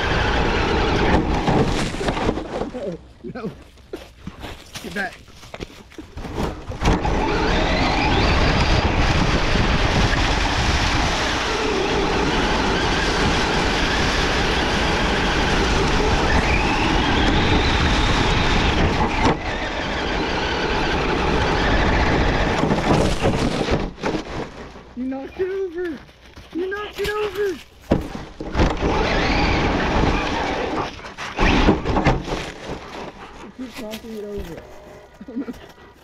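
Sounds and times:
electric motor whining: 0:00.0 - 0:01.7, 0:06.4 - 0:23.9, 0:28.4 - 0:33.2
tyres rumbling over dry leaves: 0:00.0 - 0:36.0.

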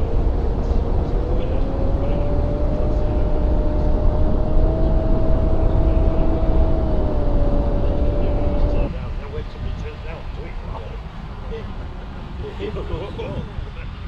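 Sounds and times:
electric motor and propeller humming: 0:00.0 - 0:11.2
wind rush on microphone: 0:00.0 - 0:14.0.

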